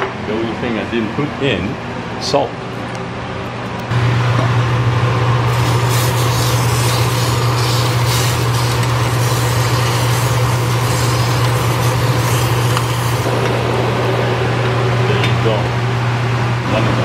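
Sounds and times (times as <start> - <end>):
steady low hum: 0.0 - 17.0
hot oil sizzling: 5.5 - 13.3.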